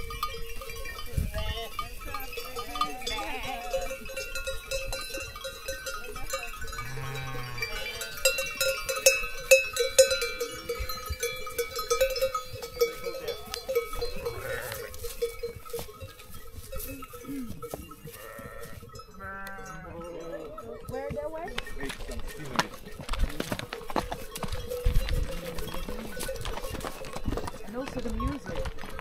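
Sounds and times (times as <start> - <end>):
livestock bells clanking: 0.0 - 29.0
animals bleating: 2.7 - 3.9, 6.8 - 8.2, 13.3 - 15.0, 17.2 - 20.8.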